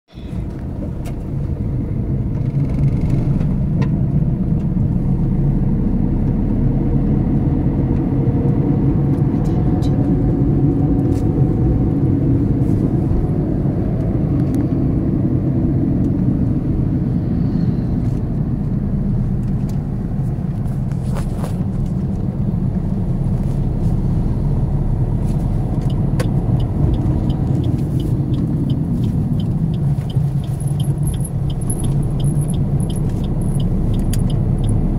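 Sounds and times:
engine and road rumble: 0:00.0 - 0:34.9
regular light ticking: 0:25.8 - 0:34.8.

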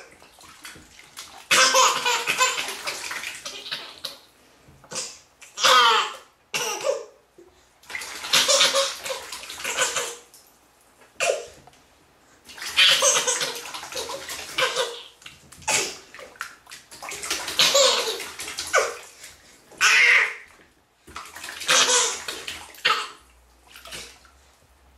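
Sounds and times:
baby splashing bath water: 0:00.0 - 0:11.6, 0:12.3 - 0:24.5
baby laughing: 0:01.5 - 0:04.2, 0:08.3 - 0:10.3, 0:12.7 - 0:16.0, 0:17.4 - 0:19.1, 0:21.6 - 0:23.2.

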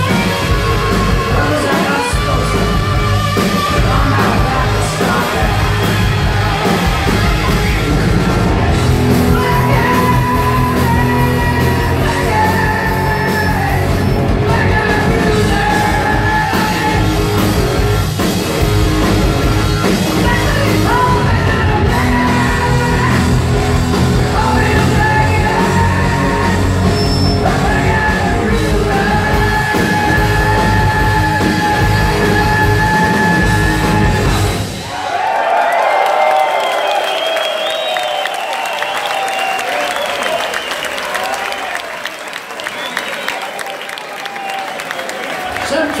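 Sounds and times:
hard rock band playing live: 0:00.0 - 0:35.0
shouted lead vocals: 0:00.0 - 0:40.4.

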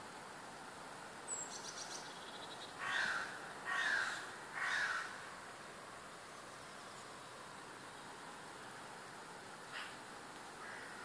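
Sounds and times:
songbird trill: 0:01.2 - 0:05.3
crow cawing: 0:02.8 - 0:05.2, 0:10.6 - 0:11.0.

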